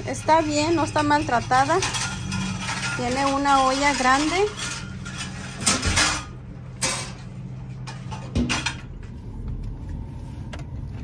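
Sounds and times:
low hum: 0:00.0 - 0:11.0.

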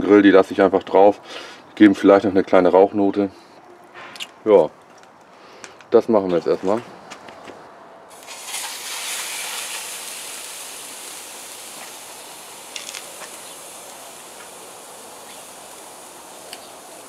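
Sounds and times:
meat sizzling on a grill: 0:08.1 - 0:17.0
sharp pops: 0:11.7 - 0:15.5.

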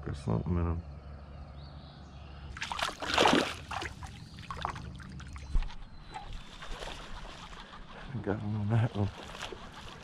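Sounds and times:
water splashing: 0:02.5 - 0:10.0.

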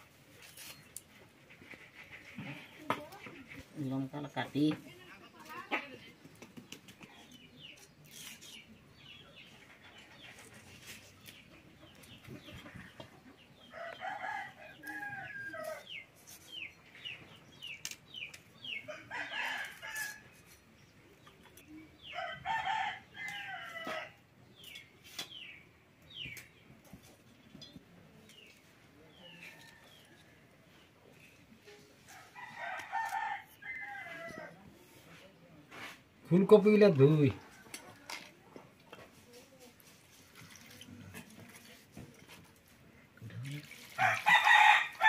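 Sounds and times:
chickens clucking: 0:08.6 - 0:13.7
rooster crowing: 0:44.0 - 0:45.0.

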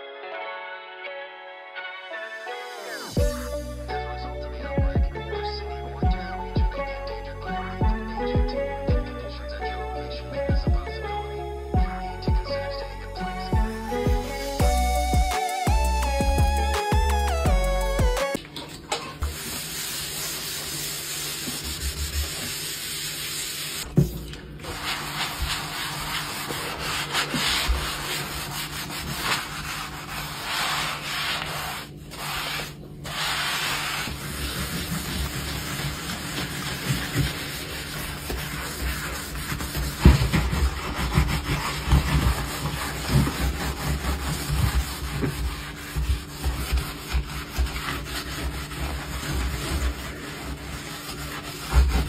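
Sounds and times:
sponge scrubbing: 0:19.2 - 0:23.9, 0:24.6 - 0:52.0.

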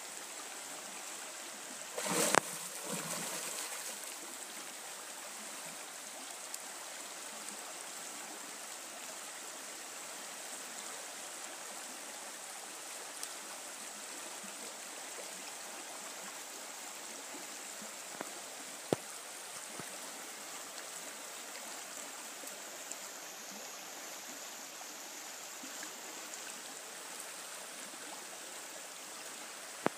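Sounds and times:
river water rushing: 0:01.9 - 0:04.4
faint ticks: 0:13.2 - 0:13.4.

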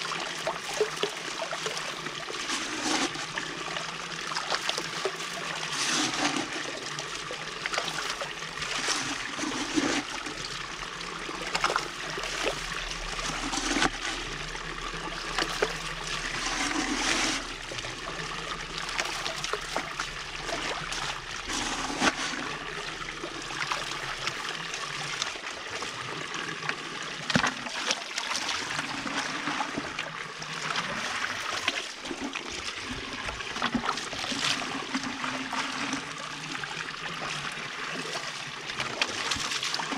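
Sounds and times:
water rushing through pipe: 0:00.0 - 0:39.9
gravel splashes and knocks: 0:04.4 - 0:10.5, 0:11.4 - 0:24.4.

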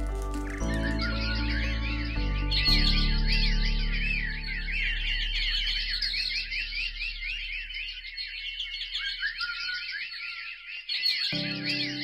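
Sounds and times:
low background music: 0:00.0 - 0:08.8, 0:11.4 - 0:12.0
small birds chirping: 0:00.0 - 0:12.0.

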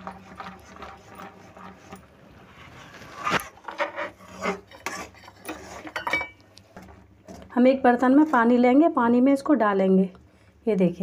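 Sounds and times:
spoon stirring thick syrup: 0:00.0 - 0:02.1, 0:04.1 - 0:06.1.

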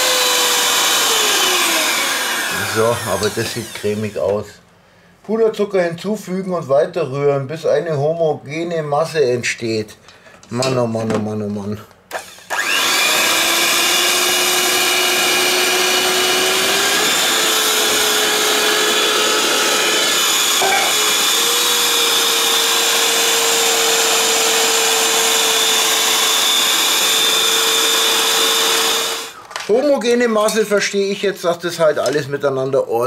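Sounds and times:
electric hand mixer running: 0:00.0 - 0:04.4, 0:12.1 - 0:29.4.

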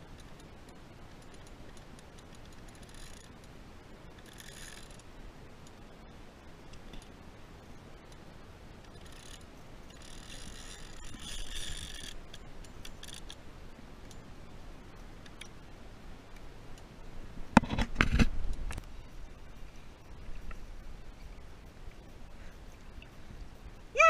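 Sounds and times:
fishing reel clicking rapidly: 0:01.2 - 0:03.4, 0:04.1 - 0:05.1, 0:08.9 - 0:13.4.

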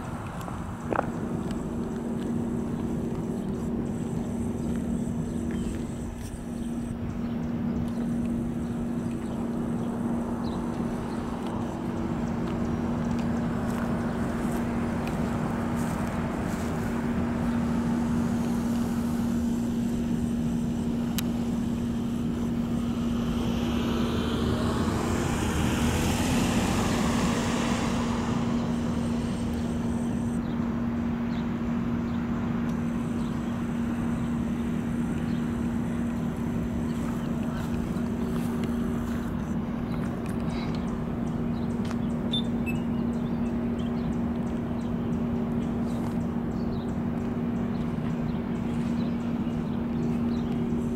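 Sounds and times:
low traffic hum: 0:00.0 - 0:50.9
vehicle passing: 0:00.0 - 0:50.9.

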